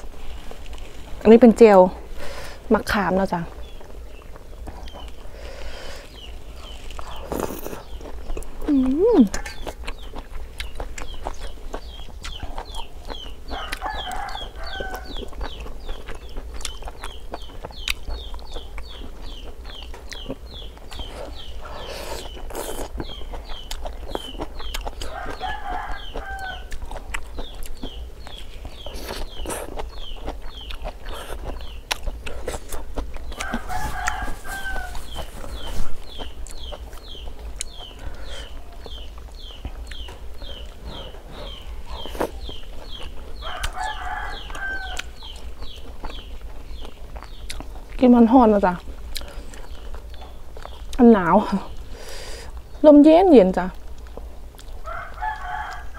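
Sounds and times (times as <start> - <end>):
chicks peeping: 1.6 - 55.9
rooster crowing: 13.5 - 15.2, 25.0 - 26.7, 33.4 - 35.8, 43.4 - 45.2, 54.8 - 55.9.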